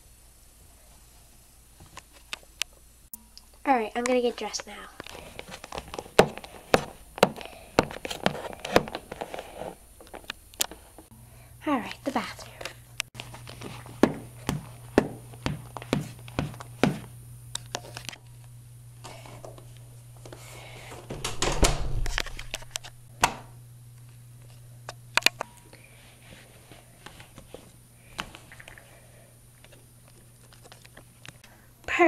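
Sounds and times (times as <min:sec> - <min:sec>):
footsteps on hard floor: 0:05.8 - 0:09.3, 0:13.2 - 0:17.1
rustling scuffle: 0:13.2 - 0:17.1.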